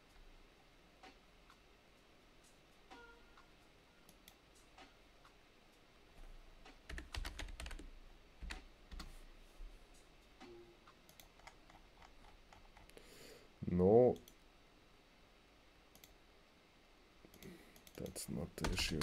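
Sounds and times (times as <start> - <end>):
keyboard typing: 6.8 - 9.1, 11.1 - 13.0, 17.3 - 19.0.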